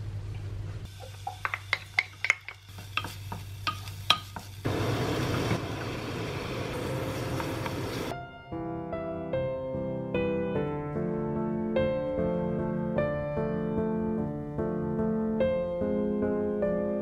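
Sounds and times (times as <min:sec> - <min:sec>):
wooden spoon tapping pot: 0:00.9 - 0:04.6
vegetables frying in oil: 0:00.9 - 0:08.1
loud rushing hiss of frying meat: 0:04.6 - 0:08.1.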